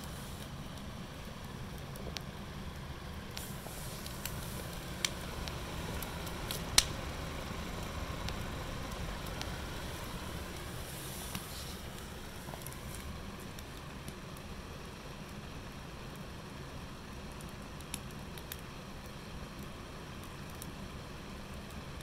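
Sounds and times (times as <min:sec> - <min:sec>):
steady low rush: 0:00.0 - 0:15.6
wood fire crackling and popping: 0:00.0 - 0:22.0
sharp wood cracks: 0:03.3 - 0:07.1.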